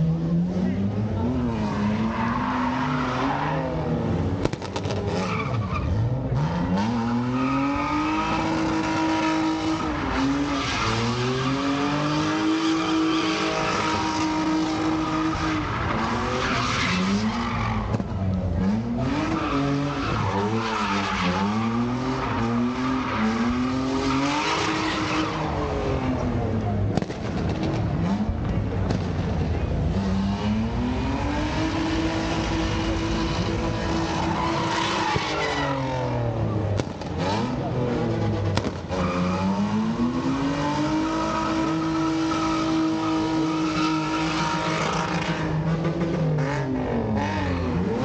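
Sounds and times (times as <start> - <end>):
car engine revving: 0.0 - 48.0.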